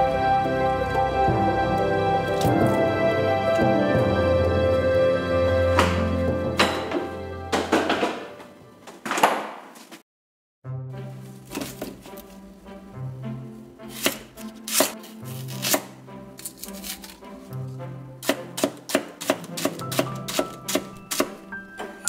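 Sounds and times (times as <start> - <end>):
soft background music: 0.0 - 9.0, 10.7 - 22.0
knife chopping on wooden board: 14.0 - 15.9, 18.2 - 21.4.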